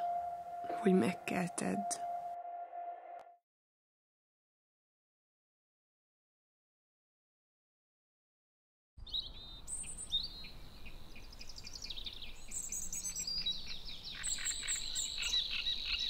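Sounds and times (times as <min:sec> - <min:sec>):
birds chirping: 0:09.0 - 0:16.0.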